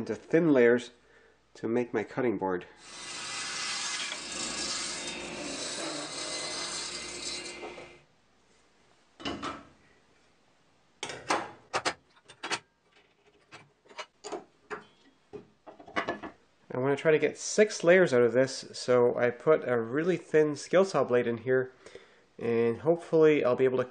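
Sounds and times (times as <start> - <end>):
table saw ripping wood: 2.8 - 8.0.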